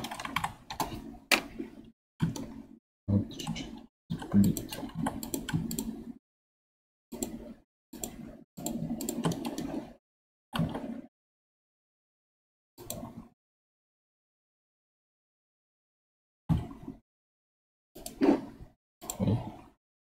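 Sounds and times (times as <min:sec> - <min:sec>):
computer keyboard typing: 0:00.0 - 0:01.0, 0:03.4 - 0:06.0.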